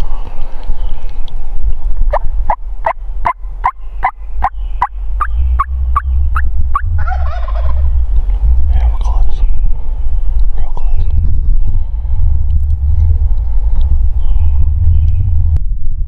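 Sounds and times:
low rumble: 0.0 - 16.0
turkey gobbling: 2.1 - 7.9
turkey yelps: 6.3 - 7.8.

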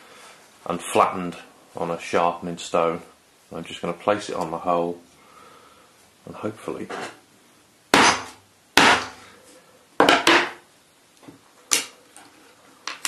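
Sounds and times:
hammer striking metal punch: 8.0 - 9.1.

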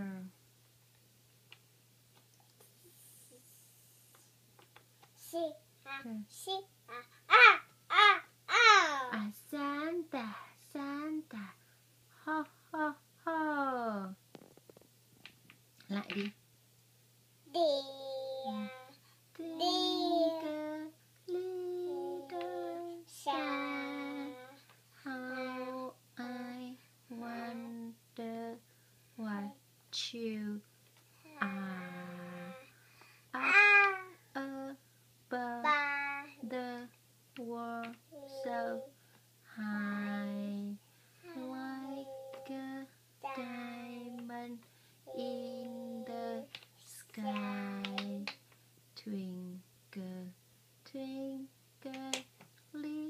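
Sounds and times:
young child singing: 17.5 - 28.6, 31.3 - 32.7, 33.4 - 39.0, 39.6 - 48.4, 50.9 - 53.0.

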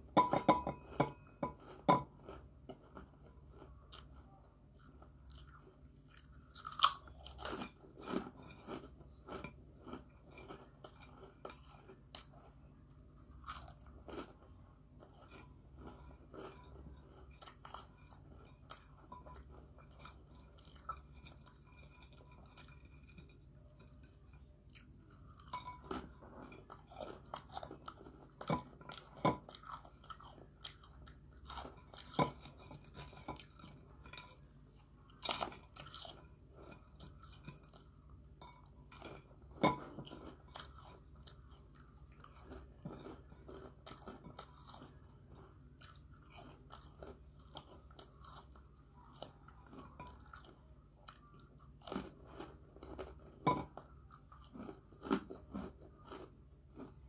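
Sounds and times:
faint low hum: 0.0 - 57.0
person chewing crunchy snacks: 0.8 - 57.0.

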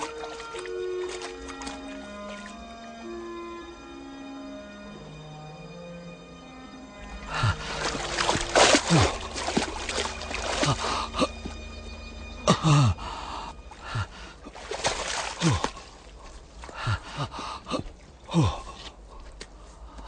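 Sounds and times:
water splashing: 0.0 - 2.6, 7.0 - 11.9, 13.2 - 19.2
man gasping and groaning: 7.3 - 7.8, 8.7 - 9.3, 10.5 - 11.5, 12.5 - 14.4, 15.4 - 15.9, 16.7 - 19.3.

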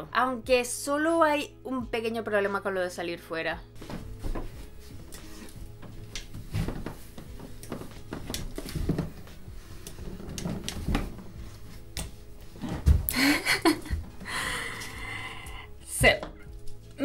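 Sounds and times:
footsteps and crutch on carpeted stairs: 3.8 - 15.0.

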